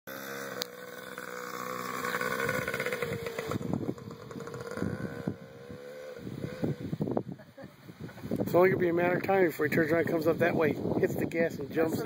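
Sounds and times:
small dirt bike engine running: 0.1s - 7.2s.

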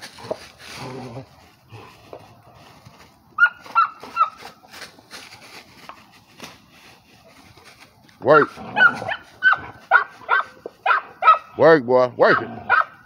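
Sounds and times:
dry leaves rustling: 0.0s - 11.6s
dog whining: 8.7s - 11.4s.

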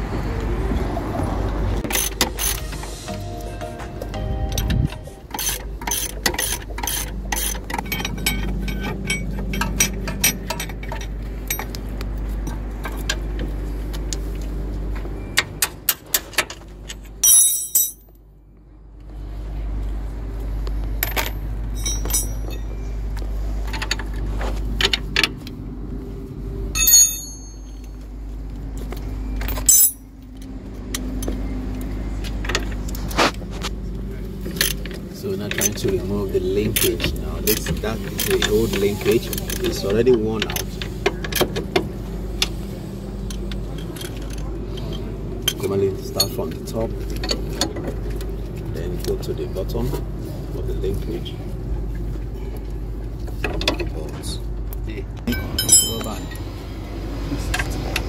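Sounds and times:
steady low rumble: 0.0s - 15.3s
steel spanners clinking: 5.1s - 11.8s, 16.9s - 18.1s, 21.0s - 22.8s, 26.8s - 28.0s, 29.4s - 30.1s, 55.3s - 56.4s.

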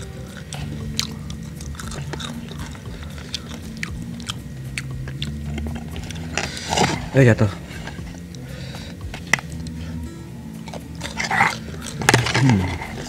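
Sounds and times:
wet mouth clicks: 0.0s - 7.1s, 7.8s - 9.8s
chewing crunchy food: 0.0s - 13.0s
fingers pulling crunchy batter: 0.0s - 13.0s
steady low hum: 0.0s - 13.0s.

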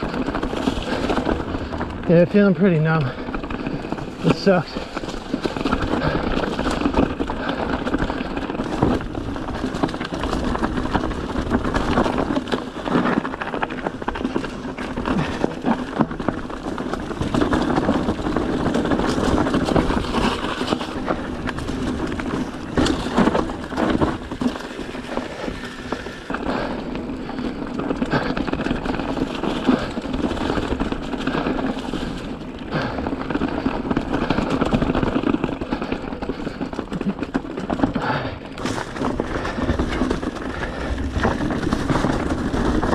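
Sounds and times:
bike rattling: 0.0s - 42.9s
bike tyres rolling on rocks: 0.0s - 42.9s.

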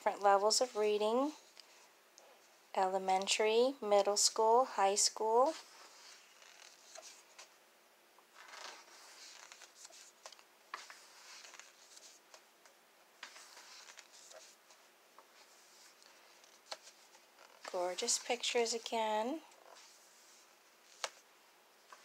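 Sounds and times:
book pages turning: 5.4s - 7.5s, 8.3s - 18.9s, 19.5s - 22.0s.

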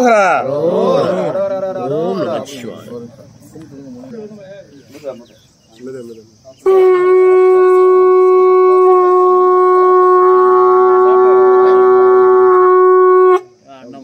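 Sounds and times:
conch shell blown: 6.6s - 13.6s.

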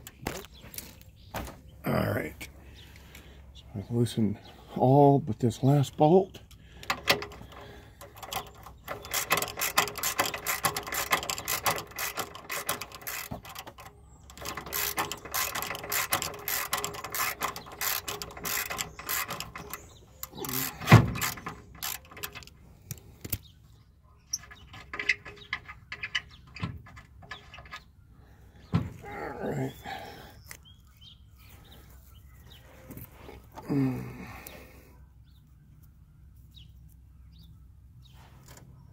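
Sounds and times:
socket ratchet clicking: 6.8s - 23.4s.

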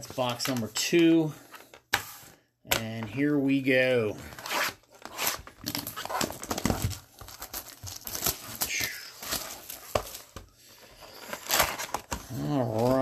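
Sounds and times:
plastic wrap crinkling and tearing: 5.0s - 10.3s.

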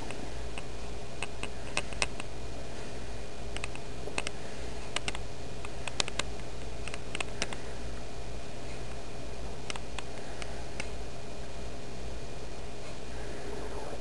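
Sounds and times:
low hum and hiss: 0.0s - 14.0s.

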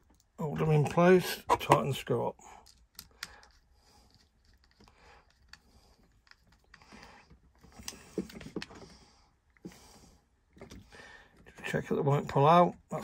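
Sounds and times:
clicks and knocks of socket handling: 2.6s - 7.1s.

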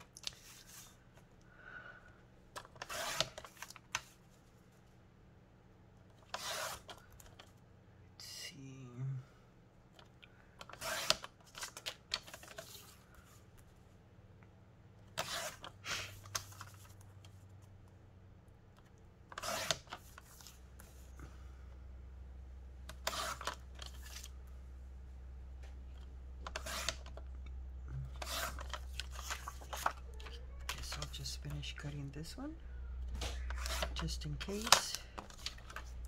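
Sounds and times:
scissors cutting paper: 2.6s - 3.6s, 6.3s - 7.0s, 10.6s - 11.8s, 15.2s - 15.7s, 19.3s - 20.3s, 22.9s - 23.6s, 26.5s - 27.2s, 28.0s - 31.1s, 33.4s - 35.9s
paper handling: 22.9s - 24.3s, 28.1s - 31.4s, 33.1s - 36.0s.

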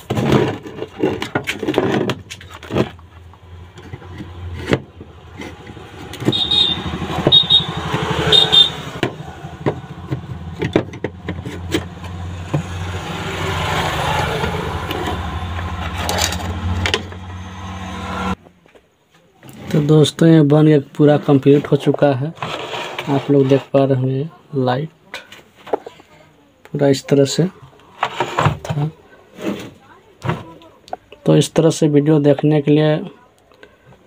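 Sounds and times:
plastic parts clicking and scraping: 0.0s - 6.4s, 9.0s - 12.7s, 14.4s - 17.3s.

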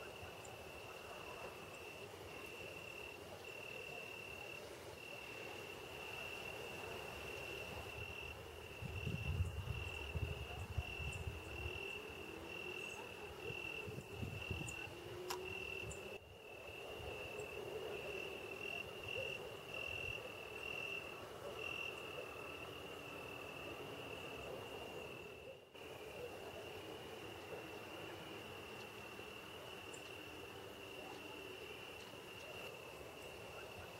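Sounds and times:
night insects chorus: 0.0s - 33.9s
cricket chirping trill: 7.3s - 33.9s.

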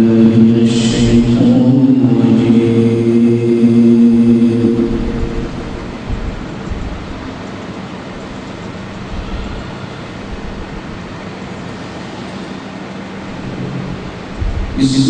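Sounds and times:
person reciting: 0.0s - 7.3s, 14.4s - 15.0s
public address hiss and hum: 0.0s - 15.0s.

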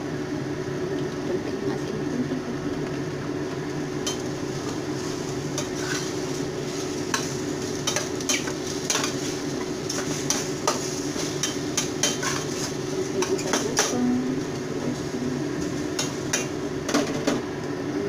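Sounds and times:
food sizzling: 0.0s - 18.0s
steady hum: 0.0s - 18.0s
utensil clinking and scraping pot: 4.0s - 14.1s.

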